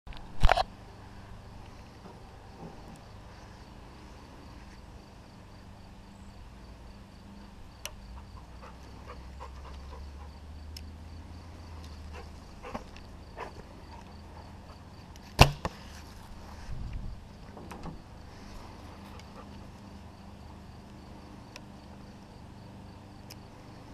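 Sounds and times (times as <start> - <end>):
insect chirping: 2.0 - 15.2, 15.8 - 23.9
sharp loud snap: 15.4 - 15.8.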